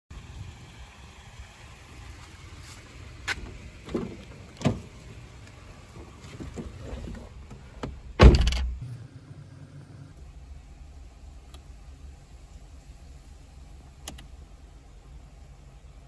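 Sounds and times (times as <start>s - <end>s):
car door handle and latch clicks: 7.8s - 8.8s
car door slamming shut: 7.8s - 8.8s.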